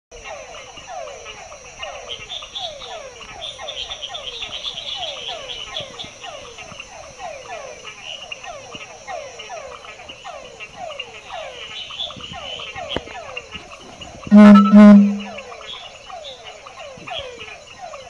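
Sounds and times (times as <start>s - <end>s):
frogs calling: 0.2s - 14.2s
steady high-pitched drone: 14.3s - 15.3s.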